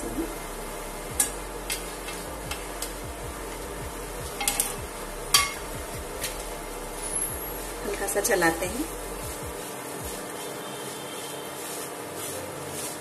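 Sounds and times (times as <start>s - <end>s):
low background hum: 0.0s - 10.4s
steel plate clinking on pan: 4.4s - 5.6s.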